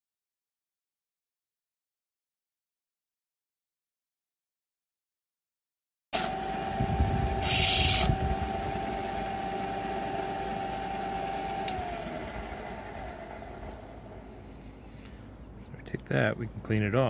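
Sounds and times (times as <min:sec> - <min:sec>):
shell grinding on abrasive disc: 0:06.2 - 0:11.8
motor whine: 0:06.2 - 0:14.9.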